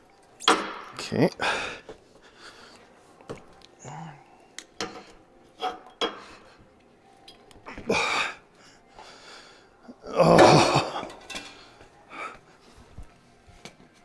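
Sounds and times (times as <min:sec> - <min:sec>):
man breathing effortfully: 0:01.4 - 0:03.1, 0:07.7 - 0:10.0, 0:11.4 - 0:13.2
man grunting: 0:03.8 - 0:04.3, 0:10.0 - 0:11.0.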